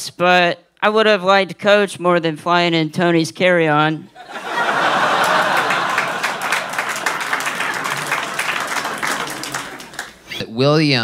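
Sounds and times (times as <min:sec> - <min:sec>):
audience laughing: 0:04.2 - 0:10.2
audience applauding: 0:04.4 - 0:10.3.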